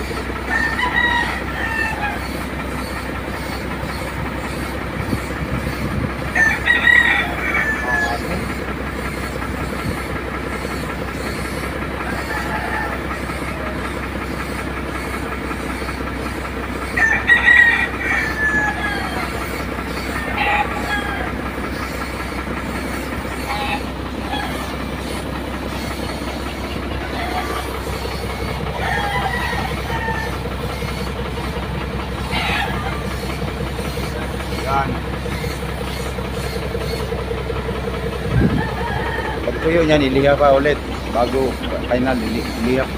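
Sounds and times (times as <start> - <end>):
air compressor droning: 0.0 - 42.9
rooster crowing: 0.3 - 2.4, 5.8 - 8.6, 11.9 - 14.0, 16.8 - 22.0, 23.3 - 34.1, 38.2 - 40.6
paint spray gun spraying: 19.2 - 37.2.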